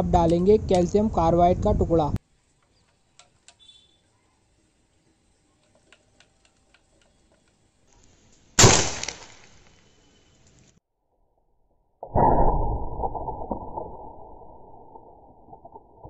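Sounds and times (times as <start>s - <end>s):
faint clicks: 5.6s - 8.4s.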